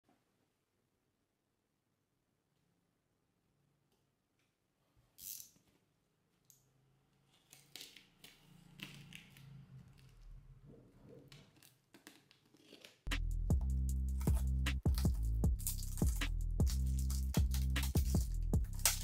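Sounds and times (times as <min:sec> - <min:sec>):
packing tape crackling and tearing: 0:11.3 - 0:13.1, 0:14.1 - 0:19.0.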